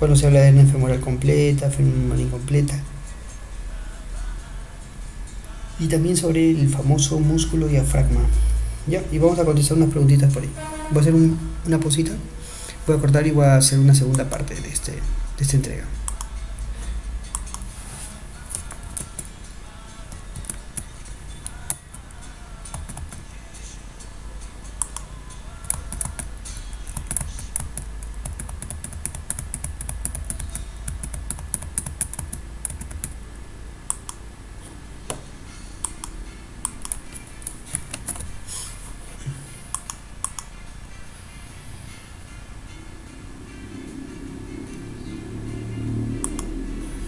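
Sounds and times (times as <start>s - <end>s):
steady low hum: 0.0s - 47.0s
computer keyboard clicks: 26.9s - 33.2s, 39.8s - 40.5s.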